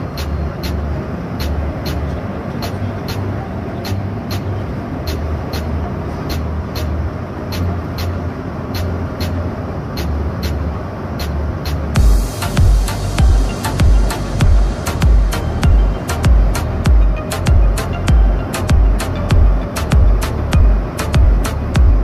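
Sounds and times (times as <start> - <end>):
bus engine and road rumble: 0.0 - 22.0.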